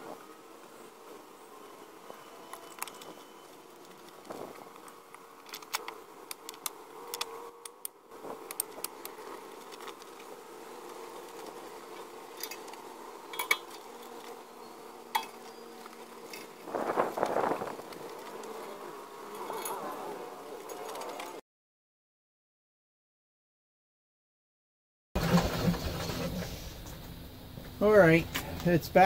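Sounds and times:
steady buzzing hum: 0:00.0 - 0:21.4
metal scraping rattle: 0:11.3 - 0:14.4
metal clinks and knocks: 0:12.3 - 0:14.2.

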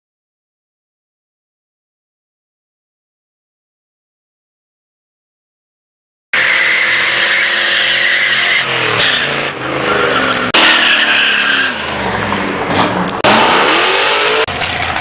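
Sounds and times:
engine revving hard: 0:06.4 - 0:12.2, 0:12.8 - 0:14.5
car tyres squealing: 0:06.4 - 0:15.0.

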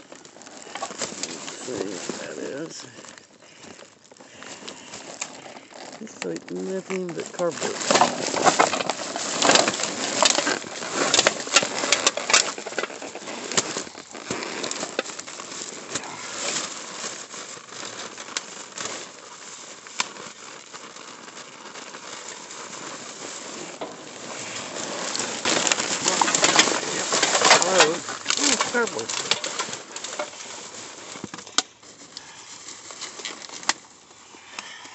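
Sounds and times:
plastic bags rustling: 0:00.0 - 0:34.9.

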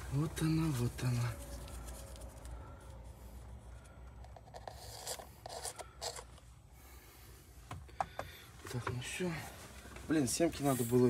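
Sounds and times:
objects rustling and scraping: 0:00.0 - 0:06.6
low steady hum: 0:00.0 - 0:11.0.

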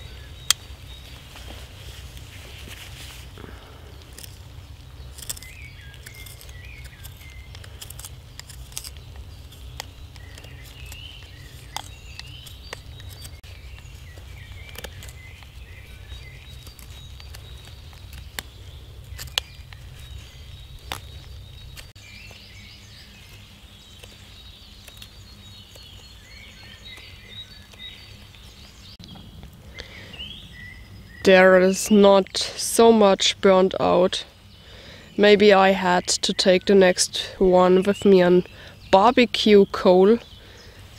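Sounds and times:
birds chirping: 0:00.0 - 0:40.9
low outdoor rumble: 0:00.0 - 0:40.9
knife scraping: 0:05.1 - 0:13.4.

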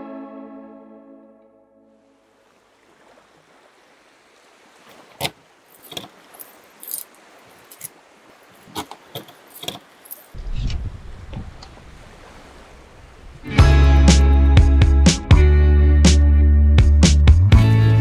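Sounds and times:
keys jangling: 0:05.8 - 0:07.9.

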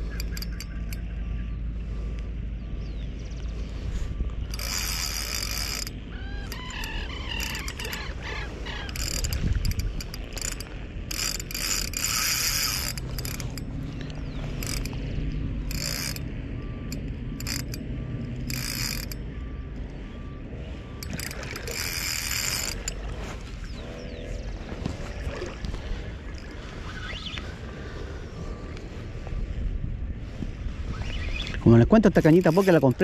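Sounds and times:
fishing reel cranking: 0:00.0 - 0:01.1, 0:04.2 - 0:20.0, 0:20.8 - 0:23.4, 0:32.0 - 0:33.0
reel drag ratcheting: 0:00.0 - 0:01.2, 0:03.7 - 0:27.6, 0:31.0 - 0:33.0.

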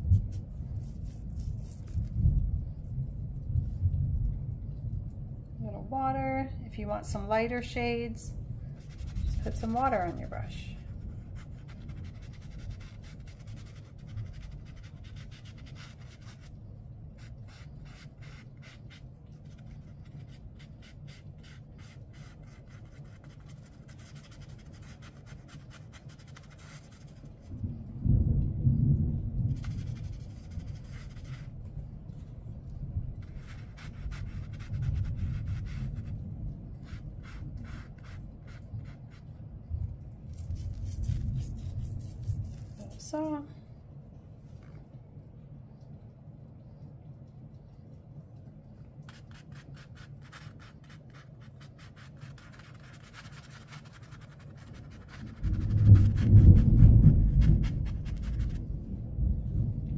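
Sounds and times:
paintbrush strokes on paper: 0:00.0 - 0:02.8, 0:08.8 - 0:27.5, 0:29.5 - 0:32.3, 0:33.2 - 0:39.3, 0:40.3 - 0:43.4, 0:49.1 - 0:58.6
thunder rumbling: 0:27.4 - 0:38.2, 0:55.1 - 0:59.9.

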